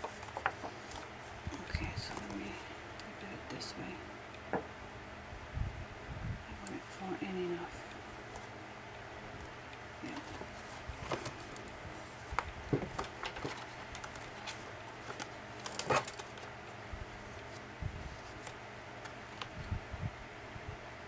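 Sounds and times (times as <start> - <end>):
paper rustling and tapping: 0.0 - 2.4, 10.1 - 16.5
faint steady hum: 0.0 - 21.0.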